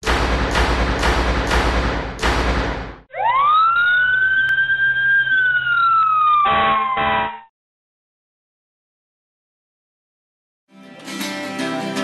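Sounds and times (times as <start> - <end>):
fire engine siren wailing: 3.1 - 7.5
air horn blast: 6.5 - 7.5.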